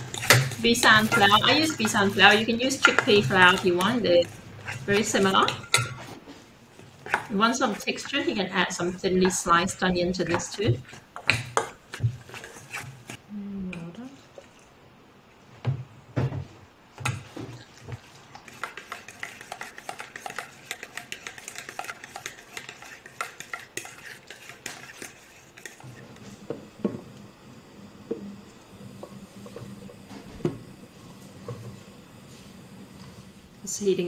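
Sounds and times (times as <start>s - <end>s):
spoon beating batter in metal bowl: 0.0s - 13.2s, 17.0s - 26.6s
spoon knocking and scraping bowl: 0.0s - 13.2s, 17.0s - 27.0s.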